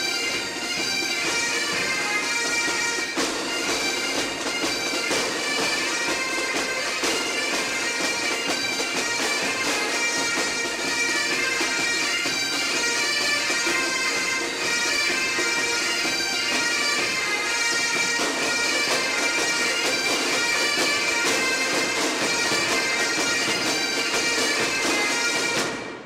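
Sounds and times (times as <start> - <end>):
bagpipe music: 0.0 - 26.0.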